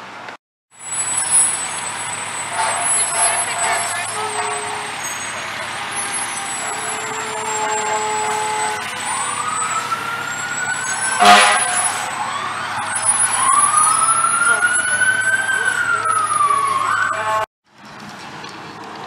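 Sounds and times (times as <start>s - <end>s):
fire truck sirens wailing: 0.8s - 19.0s
loud horn blast: 2.5s - 9.2s, 11.1s - 12.1s.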